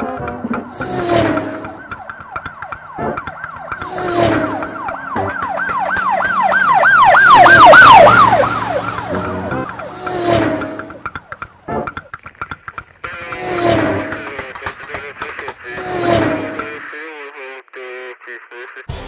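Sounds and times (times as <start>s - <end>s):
background music: 0.0s - 1.9s, 7.3s - 10.9s
siren-like swooping tone: 0.6s - 11.2s, 13.2s - 14.4s, 15.7s - 16.8s.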